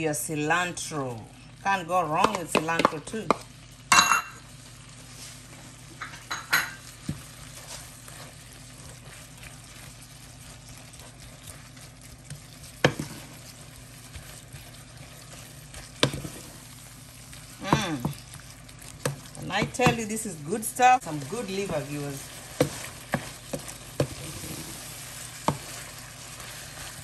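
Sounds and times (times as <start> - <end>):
stew sizzling in a frying pan: 0.0 - 27.0
wooden spoon knocking a pan: 2.2 - 3.4, 16.0 - 16.4, 22.5 - 24.2, 25.4 - 25.8.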